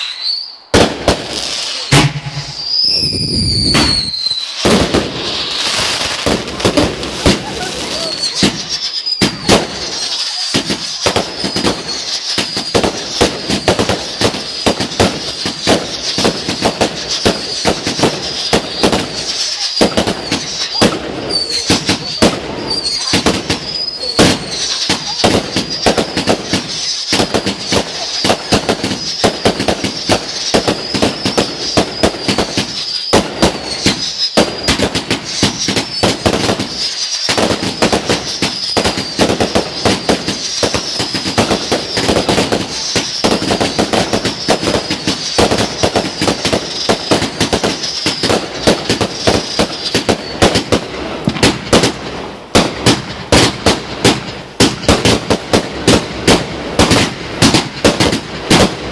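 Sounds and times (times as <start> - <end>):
high wavering whistle: 0.0 - 0.7, 1.6 - 4.6, 7.5 - 10.2
firework bangs and cracks: 0.0 - 58.9.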